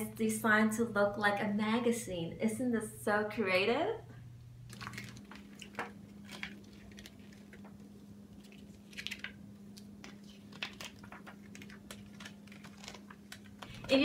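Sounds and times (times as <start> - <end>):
faint steady hum: 0.0 - 14.0
paper rustling: 4.7 - 14.0.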